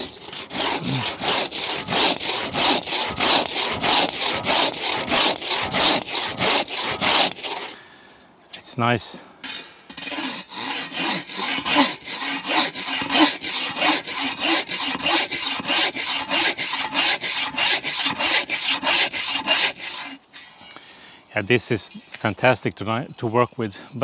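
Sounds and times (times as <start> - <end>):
bow saw cutting a log: 0.0 - 7.8, 9.9 - 20.2.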